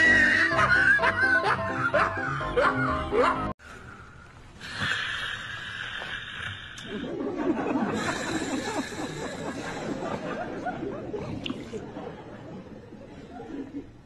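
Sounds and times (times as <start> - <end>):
people giggling and snickering: 0.4 - 3.5, 6.8 - 14.0.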